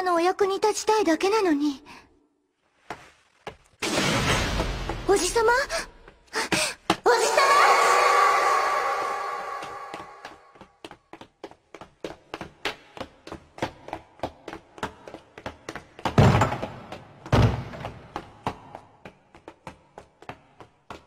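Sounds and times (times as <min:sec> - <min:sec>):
quick footsteps on hard floor: 0:09.0 - 0:21.0.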